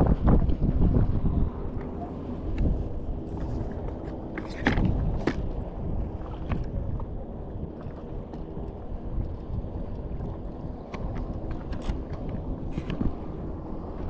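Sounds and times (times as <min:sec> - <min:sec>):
wind rumbling on microphone: 0:00.0 - 0:14.0
water moving around a board: 0:02.4 - 0:14.0.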